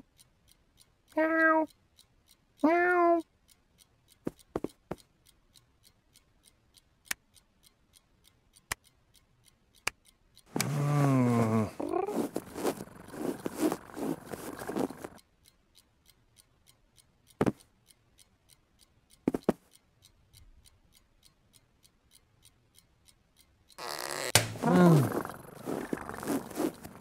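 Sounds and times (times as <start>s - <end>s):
quiet steady ticking: 0.0s - 27.0s
cartoon vocal sound effects: 1.2s - 1.7s, 10.6s - 12.3s, 24.6s - 26.2s
soft thumps: 19.3s - 19.6s.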